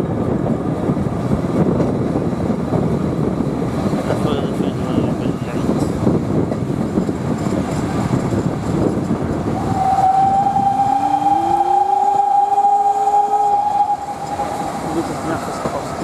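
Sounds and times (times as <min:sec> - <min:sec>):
train rumbling on track: 0:00.0 - 0:16.0
steam whistle long note: 0:09.6 - 0:14.5.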